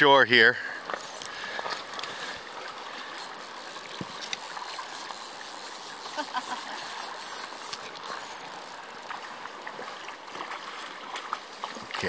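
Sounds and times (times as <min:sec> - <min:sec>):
river water running over gravel: 0:00.0 - 0:12.0
faint clicks: 0:00.8 - 0:02.2.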